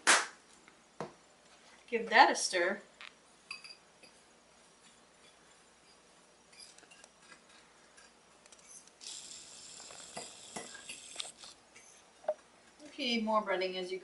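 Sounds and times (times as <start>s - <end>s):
breadcrumbs being stirred hiss: 4.4s - 12.0s
fork scraping and clinking on dish: 4.8s - 8.9s, 10.0s - 11.2s.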